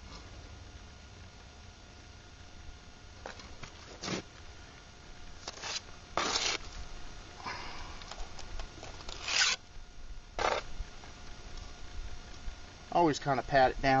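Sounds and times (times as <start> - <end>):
trowel scraping wet mortar: 5.4 - 6.6.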